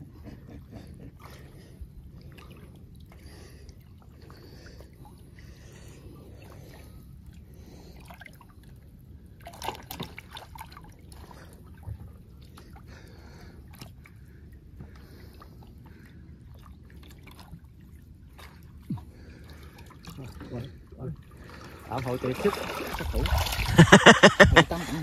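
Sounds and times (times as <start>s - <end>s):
people wading in muddy water: 0.0s - 25.0s
sharp water splashes: 21.4s - 25.0s.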